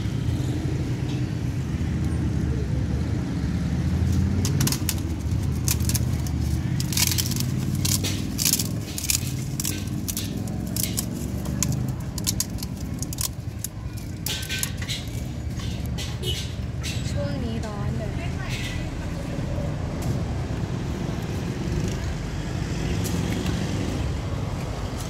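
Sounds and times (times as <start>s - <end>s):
engine humming: 0.0s - 25.0s
plastic bags crackling: 4.2s - 16.4s.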